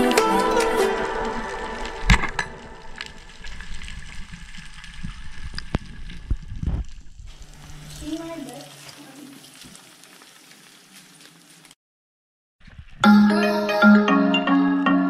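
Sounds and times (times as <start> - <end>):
electronic background music: 0.0 - 3.0, 13.0 - 15.0
underwater water wash: 0.0 - 11.0
sharp clicks and crackles: 0.1 - 11.8.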